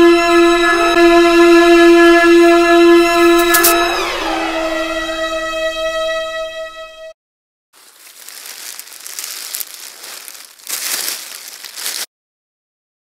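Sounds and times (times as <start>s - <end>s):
plastic bags crinkling: 7.8s - 12.1s.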